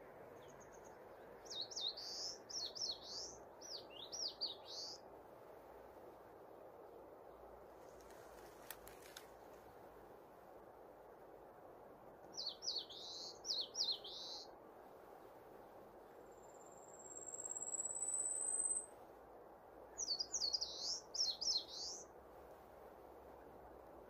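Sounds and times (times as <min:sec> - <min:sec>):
background hiss: 0:00.0 - 0:24.0
songbird whistling: 0:01.5 - 0:05.0, 0:12.4 - 0:14.5, 0:16.9 - 0:18.9, 0:20.0 - 0:22.0.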